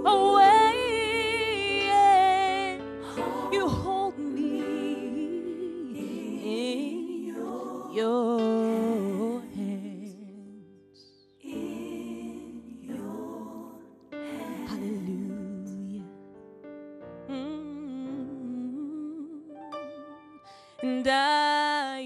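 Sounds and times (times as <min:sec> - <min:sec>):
woman singing gospel ballad: 0:00.0 - 0:10.6, 0:11.5 - 0:16.1, 0:20.8 - 0:22.0.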